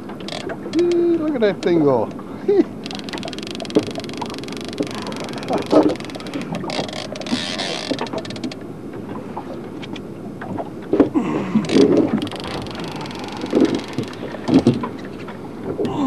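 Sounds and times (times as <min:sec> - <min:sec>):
low boat rumble: 0:00.0 - 0:16.0
fishing reel drag clicking: 0:02.8 - 0:08.5.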